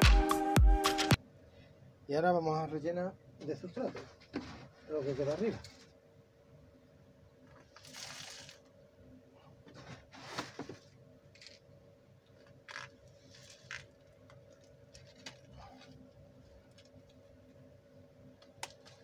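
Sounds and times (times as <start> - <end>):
faint steady hum: 1.2 - 19.0
grains pattering on plastic: 12.4 - 17.2.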